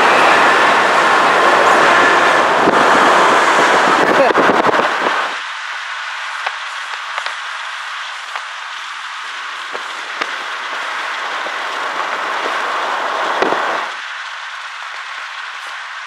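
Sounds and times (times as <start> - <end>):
car road and wind noise: 0.0 - 16.0.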